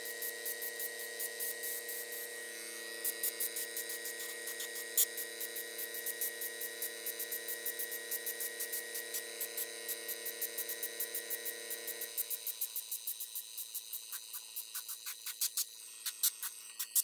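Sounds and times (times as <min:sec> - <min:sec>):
steady hum: 0:00.0 - 0:17.0
airbrush hissing bursts: 0:13.9 - 0:17.0.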